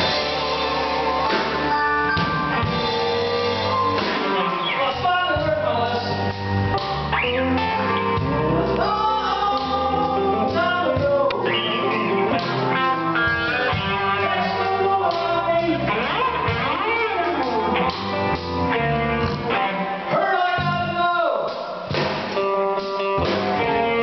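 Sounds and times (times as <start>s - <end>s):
blues band playing: 0.0s - 24.0s
electric guitar: 0.0s - 24.0s
man singing: 2.8s - 6.7s, 7.3s - 18.0s, 20.0s - 21.6s.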